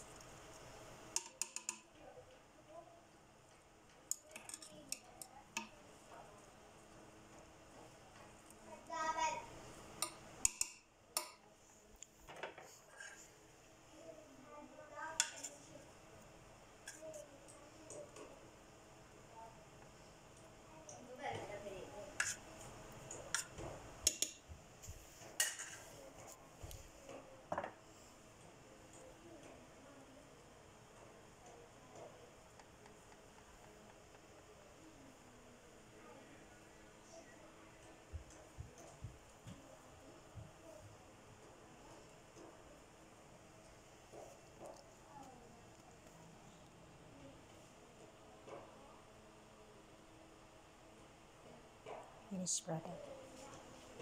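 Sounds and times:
spoon tapping bowl: 1.1 - 1.8
utensils clinking on a pot: 25.4 - 25.9.

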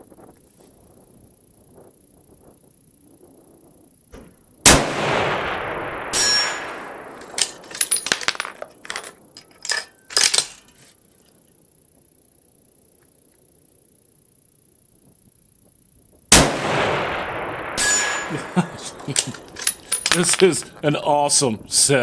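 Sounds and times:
rifle shot: 4.2 - 8.6, 16.3 - 20.7
rifle bolt clicking: 7.2 - 10.7, 19.0 - 20.6.

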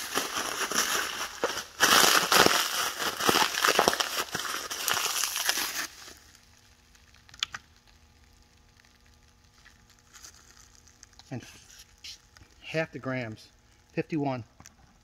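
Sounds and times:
plastic film crumpling: 0.0 - 7.6, 8.9 - 12.5.

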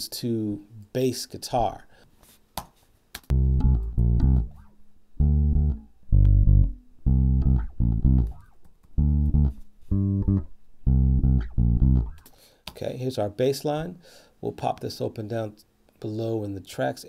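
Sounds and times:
electric bass guitar plucking: 3.3 - 12.3.

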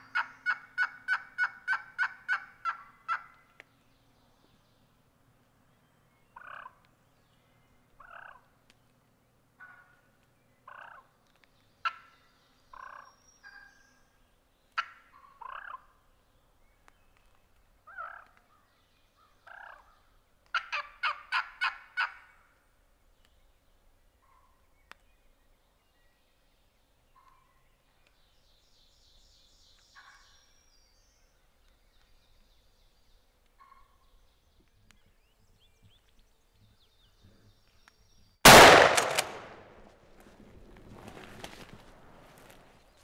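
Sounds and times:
turkey gobbling: 0.0 - 3.4, 20.6 - 22.3
turkey hen calling: 0.0 - 3.5, 6.4 - 6.8, 20.5 - 22.4, 33.6 - 33.9.

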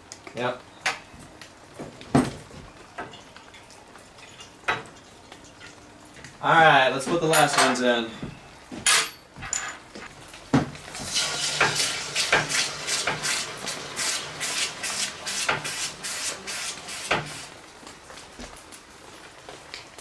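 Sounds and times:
hot steel hissing in water: 10.9 - 17.6.

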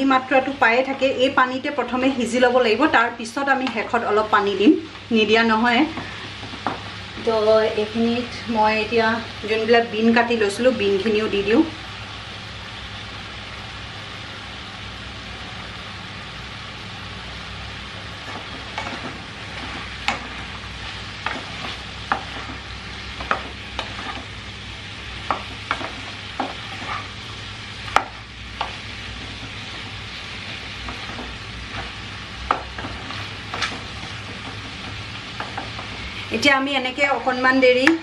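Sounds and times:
steady low hiss: 0.0 - 38.0
wooden spatula scraping a pan: 18.1 - 36.5.

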